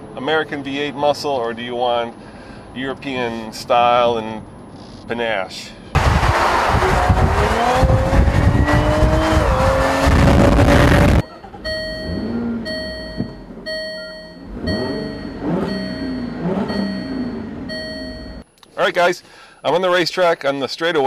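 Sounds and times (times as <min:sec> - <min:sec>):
car engine revving: 0:06.0 - 0:11.2, 0:12.0 - 0:13.6, 0:14.4 - 0:18.4
door-open warning chime beeping: 0:11.2 - 0:18.4.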